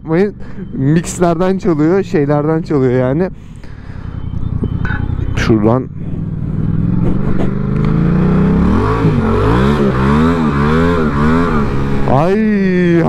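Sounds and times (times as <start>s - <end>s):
motorcycle engine revving: 3.9s - 13.0s.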